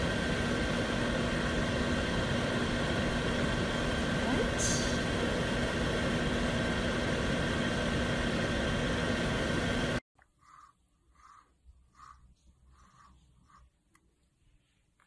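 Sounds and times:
electric motor humming: 0:00.0 - 0:11.4.

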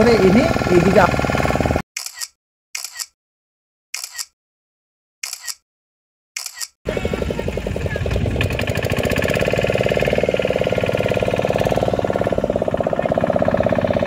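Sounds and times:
boat engine knocking: 0:00.0 - 0:01.8, 0:06.9 - 0:14.0.

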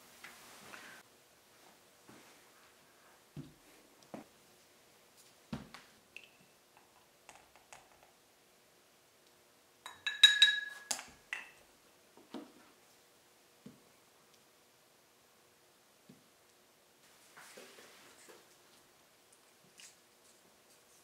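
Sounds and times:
ringing clinks on ceramic cup: 0:09.9 - 0:11.6.

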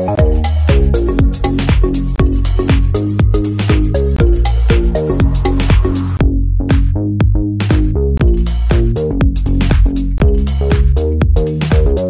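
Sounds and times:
electronic dance music: 0:00.0 - 0:06.9.

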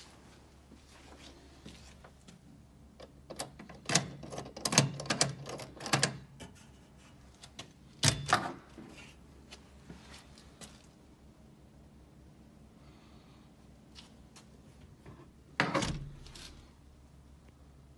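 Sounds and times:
door lock and latch clicking: 0:03.0 - 0:06.3.

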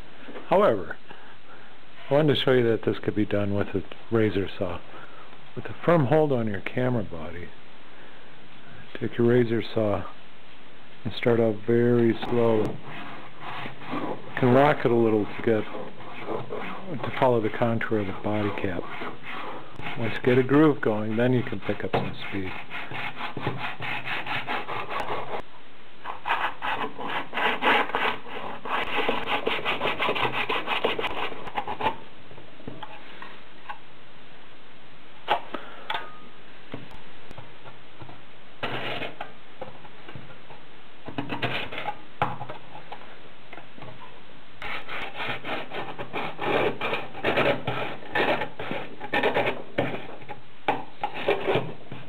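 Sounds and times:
saw cutting plastic: 0:44.6 - 0:50.1.

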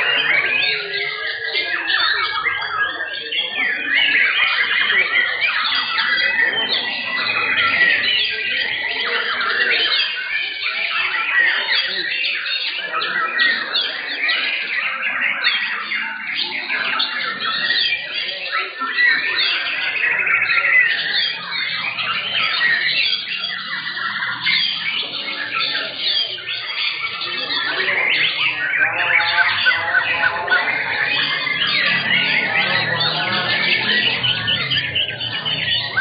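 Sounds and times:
birds singing whistles and trills: 0:00.0 - 0:36.0.

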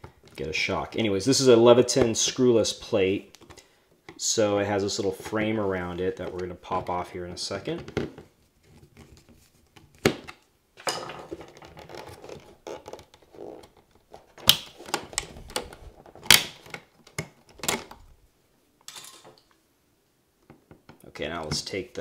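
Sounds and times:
plastic clicks and snaps: 0:14.4 - 0:18.0.

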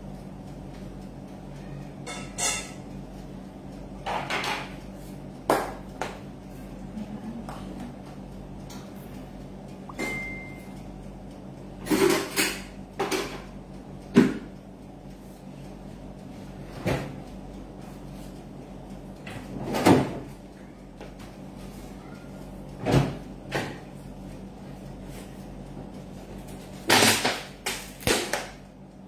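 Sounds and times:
steady low hum: 0:00.0 - 0:29.0
short high beep: 0:09.9 - 0:10.7.

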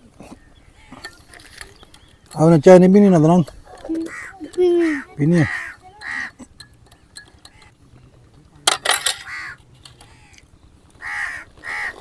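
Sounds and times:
crows cawing: 0:00.6 - 0:01.2, 0:03.7 - 0:06.5, 0:09.1 - 0:12.0
spoon clinking against teacups: 0:05.8 - 0:07.8.

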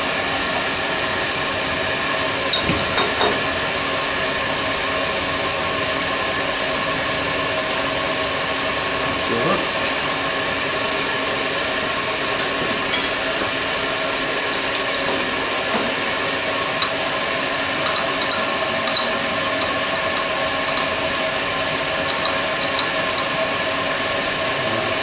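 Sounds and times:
milling machine humming: 0:00.0 - 0:25.0.

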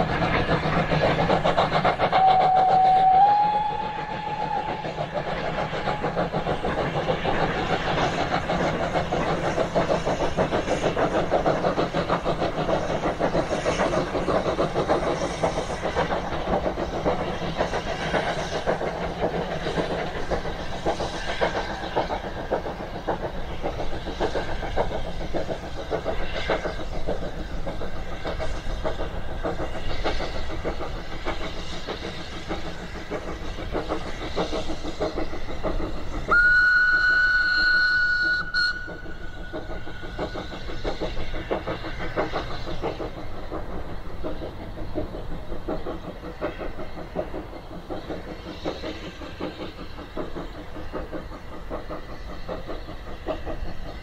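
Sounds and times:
steam locomotive exhaust beats: 0:00.0 - 0:54.0
steam whistle blast: 0:02.2 - 0:04.8, 0:36.3 - 0:39.0.

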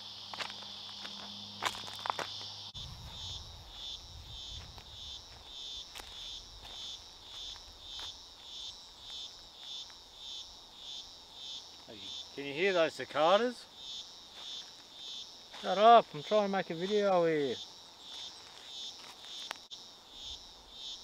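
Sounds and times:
cicadas droning in chorus: 0:00.0 - 0:21.0
footsteps on river stones: 0:00.3 - 0:02.5, 0:04.6 - 0:08.3.

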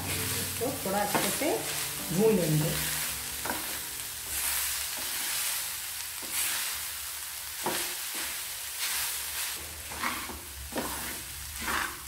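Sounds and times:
food sizzling in a pan: 0:00.0 - 0:12.0
spatula scraping a pan: 0:03.4 - 0:05.5, 0:06.2 - 0:06.8, 0:07.6 - 0:12.0.

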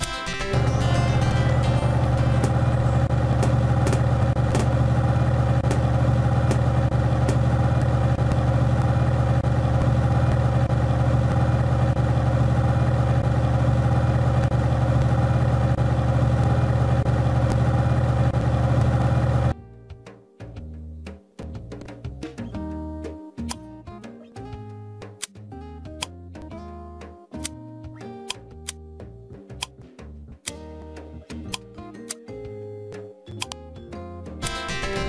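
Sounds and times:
low engine rumble: 0:00.5 - 0:19.6.

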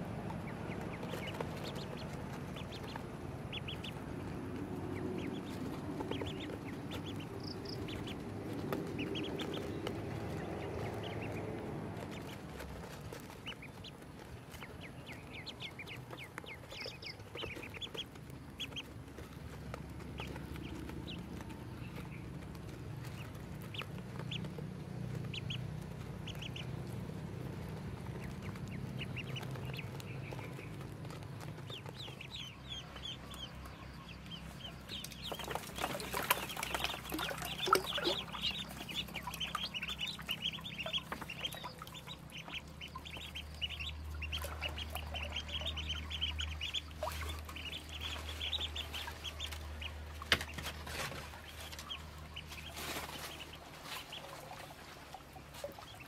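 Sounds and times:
ducklings peeping: 0:00.0 - 0:56.0
water splashing: 0:34.6 - 0:56.0.

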